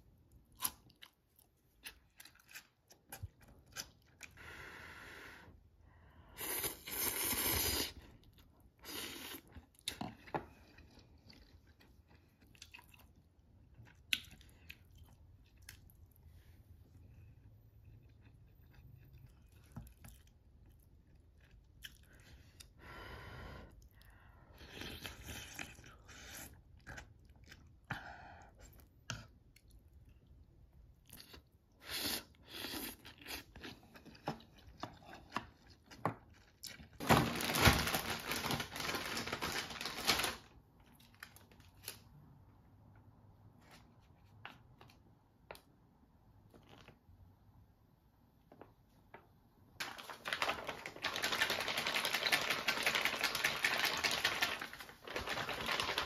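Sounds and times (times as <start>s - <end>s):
chewing and crunching: 9.4s - 16.2s, 17.4s - 22.7s.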